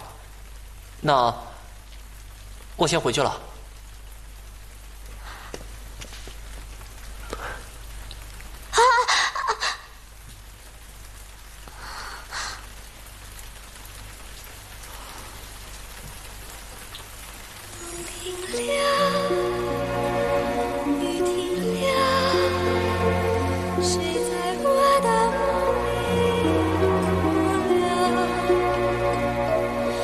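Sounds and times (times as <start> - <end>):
steady hiss: 0.0 - 30.0
soft music: 17.7 - 30.0.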